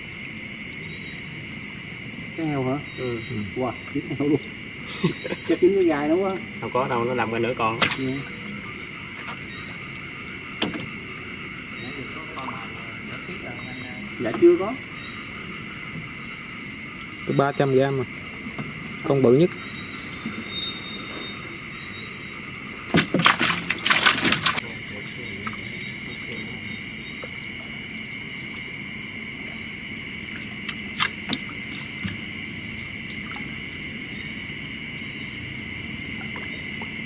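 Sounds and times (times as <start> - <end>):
night insects chorus: 0.0 - 37.0
sharp knocks and splashes: 7.7 - 8.3, 9.2 - 11.0, 22.8 - 26.4, 30.3 - 32.4, 33.0 - 33.6, 36.2 - 37.0.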